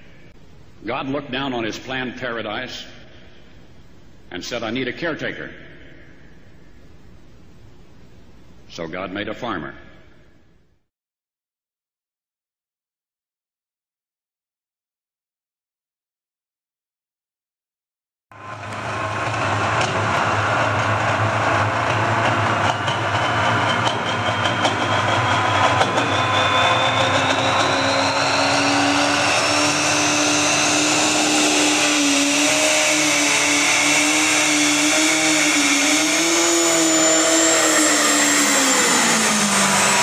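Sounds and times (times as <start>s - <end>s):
high whine rising in pitch: 18.3s - 40.0s
diesel engine running flat out: 18.4s - 40.0s.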